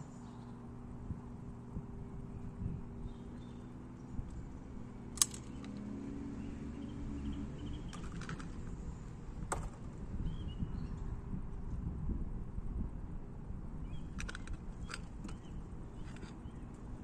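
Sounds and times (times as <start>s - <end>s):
shotgun metallic clicks: 5.1s - 5.9s, 14.2s - 16.9s.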